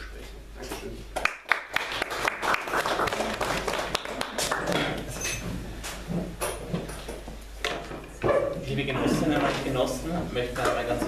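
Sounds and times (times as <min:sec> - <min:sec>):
scattered clapping: 0:01.2 - 0:05.0.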